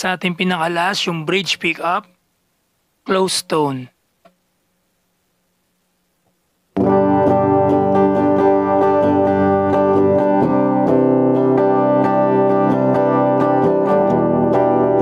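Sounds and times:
clean electric guitar chords: 6.8 - 15.0.

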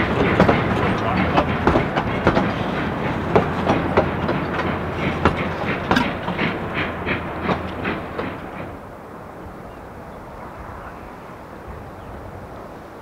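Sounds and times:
train wheels clicking over rail joints: 0.0 - 9.0
train rumble: 0.0 - 13.0.

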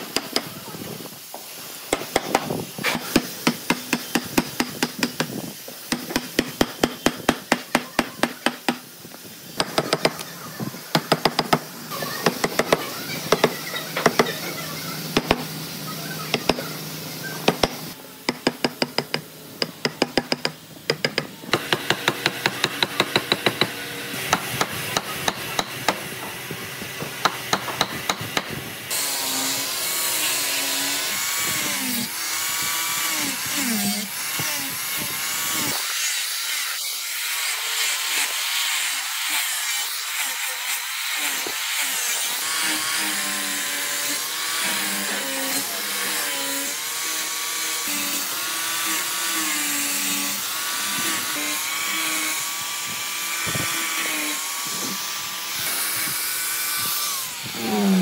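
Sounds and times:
power tool cutting wood: 21.5 - 58.0.

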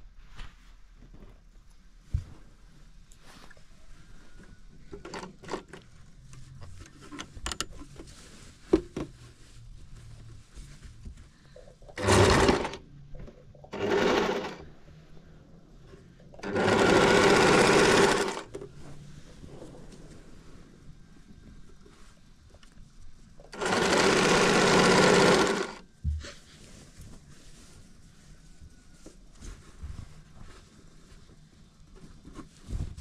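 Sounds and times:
sewing machine stitching: 12.0 - 12.8, 13.7 - 14.7, 16.4 - 18.6, 23.5 - 25.8.

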